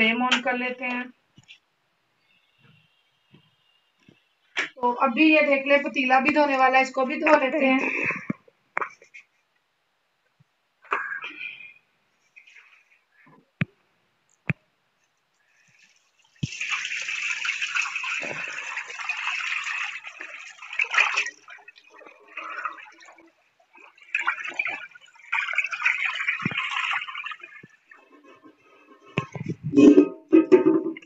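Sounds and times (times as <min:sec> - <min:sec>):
water splashing and scrubbing: 0:15.7 - 0:31.0.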